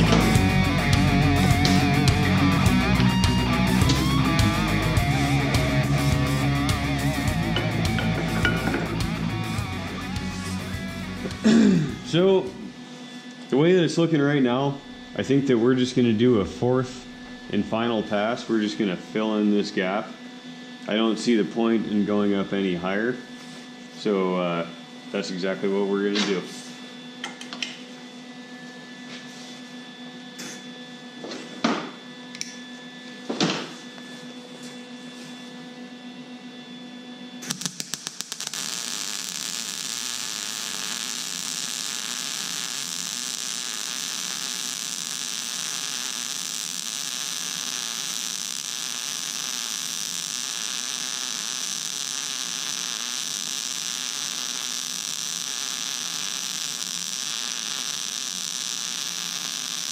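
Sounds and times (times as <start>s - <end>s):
welding arc crackling and sizzling: 0.0s - 12.8s, 37.4s - 59.9s
low hum: 0.0s - 12.9s.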